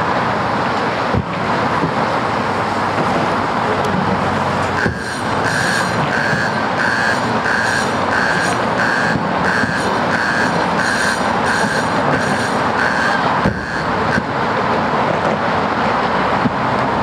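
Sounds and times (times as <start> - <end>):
road traffic: 0.0 - 17.0
high electronic beeps: 4.8 - 14.3.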